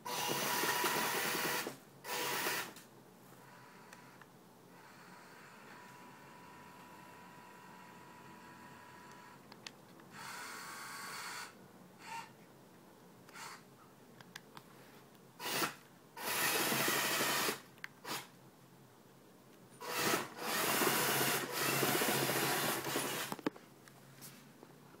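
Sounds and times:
small electric gear motors running: 0.1s - 2.8s, 19.8s - 23.4s.

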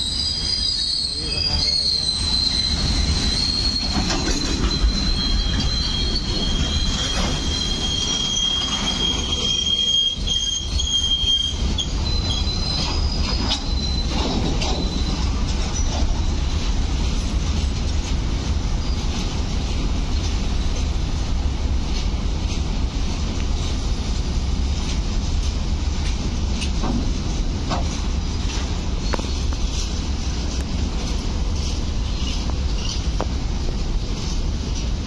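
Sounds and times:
high wheel squeals: 0.0s - 16.7s
freight wagons rumbling: 0.0s - 35.0s
wheel clacks over rail joints: 2.4s - 21.0s, 21.8s - 35.0s.

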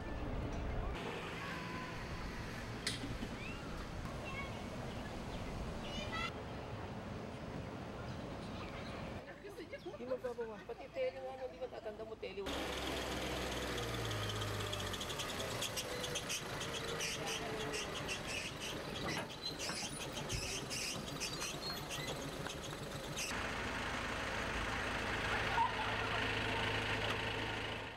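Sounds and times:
birds chirping: 1.5s - 6.7s, 13.0s - 23.3s
tram engine running: 12.5s - 27.9s.

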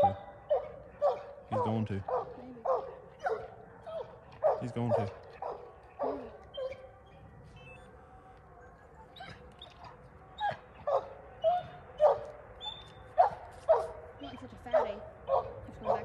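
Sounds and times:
sharp dog barks: 0.0s - 6.2s
dogs yelping and whining: 0.0s - 8.0s, 8.8s - 16.0s.

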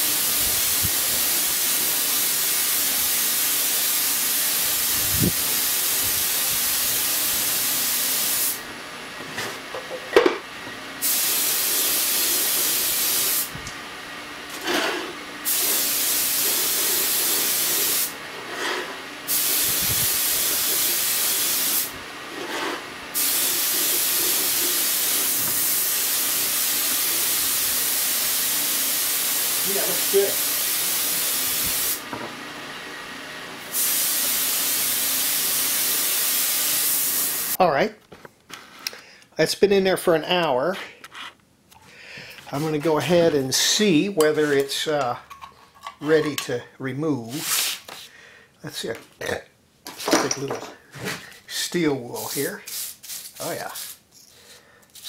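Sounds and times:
spray gun hissing: 0.0s - 8.6s, 11.0s - 13.5s, 15.4s - 18.1s, 19.3s - 21.9s, 23.2s - 32.0s, 33.6s - 37.6s, 52.2s - 54.0s.

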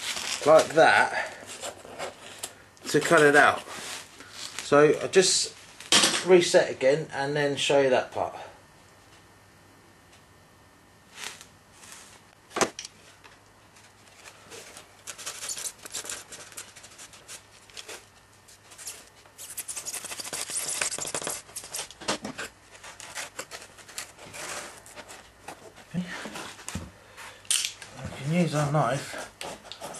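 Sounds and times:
scratchy rubbing and scraping: 14.2s - 26.6s, 28.2s - 29.9s.

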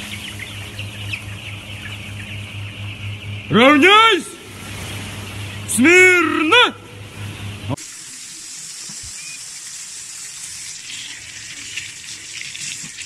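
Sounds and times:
tap water running into sink: 7.8s - 13.0s.

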